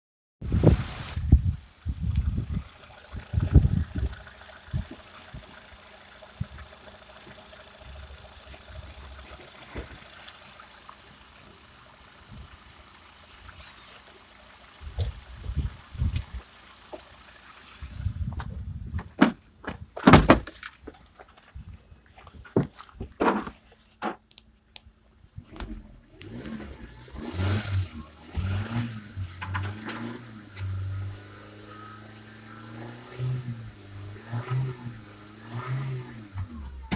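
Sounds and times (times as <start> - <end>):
fast light engine ticking: 0.4 - 18.5
car engine idling: 0.4 - 18.8.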